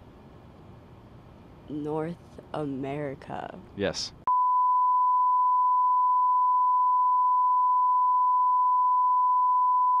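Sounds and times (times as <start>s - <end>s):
steady test tone beep: 4.3s - 10.0s.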